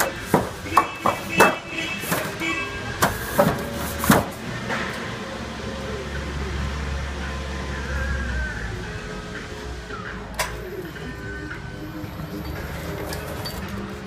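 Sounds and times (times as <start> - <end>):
sheet metal knocking: 0.0 - 2.4.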